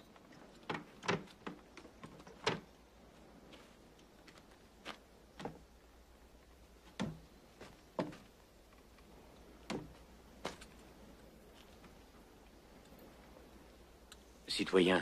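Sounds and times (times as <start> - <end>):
faint low hum: 0.0 - 15.0
footsteps and knocks on wood: 0.5 - 2.8, 3.5 - 5.7, 6.8 - 10.9.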